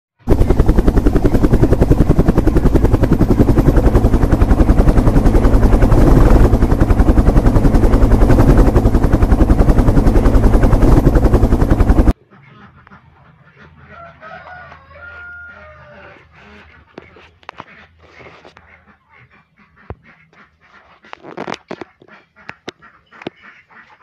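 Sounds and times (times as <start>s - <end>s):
helicopter rotor chopping: 0.2s - 12.2s.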